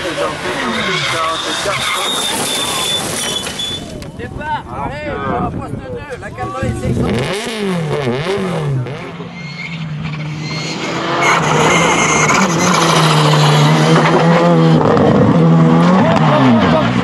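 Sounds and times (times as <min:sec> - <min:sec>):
engine revving: 0:06.8 - 0:17.0
rally car passing at high revs: 0:06.8 - 0:17.0.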